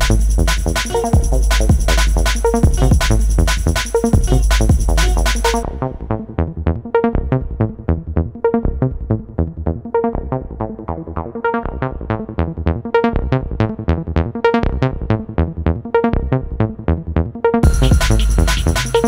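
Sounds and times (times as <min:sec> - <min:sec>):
plucked synth notes: 0:00.0 - 0:06.3, 0:17.6 - 0:19.0
pulsing bass: 0:00.0 - 0:19.0.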